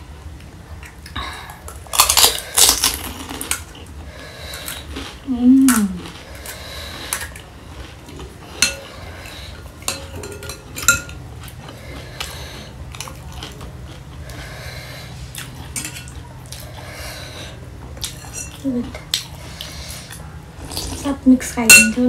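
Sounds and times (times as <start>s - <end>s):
spoon and fork clinking on bowl: 8.6s - 8.9s, 9.9s - 11.2s, 21.7s - 22.0s.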